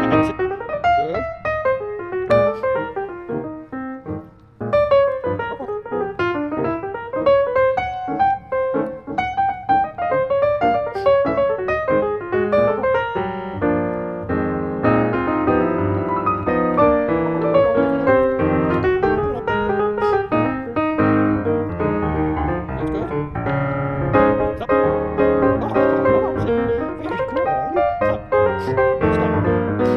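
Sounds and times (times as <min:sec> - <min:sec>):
piano music: 0:00.0 - 0:29.9.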